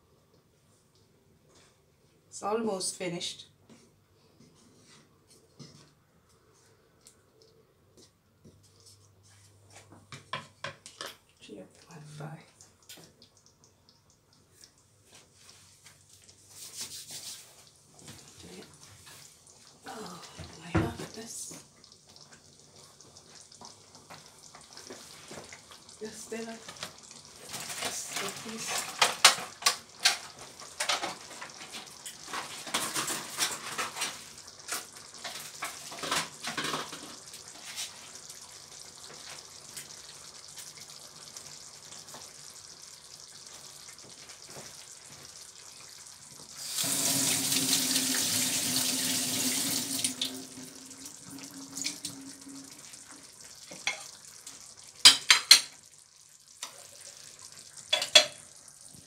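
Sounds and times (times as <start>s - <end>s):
water running from kitchen tap: 11.4s - 59.0s
cookware knocks and clinks: 55.1s - 55.7s, 57.9s - 58.4s.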